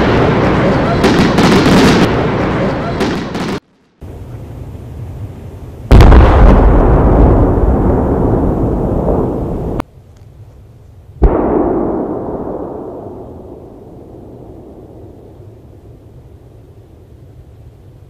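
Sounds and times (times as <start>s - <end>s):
firework booms: 0.0s - 3.6s, 5.9s - 9.8s, 11.2s - 16.8s.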